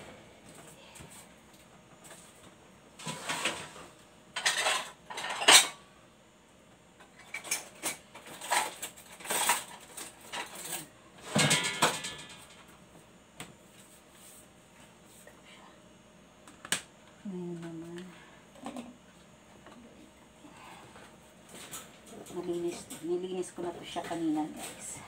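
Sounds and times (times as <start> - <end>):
dishes and utensils clattering: 3.0 - 5.8, 7.2 - 12.7.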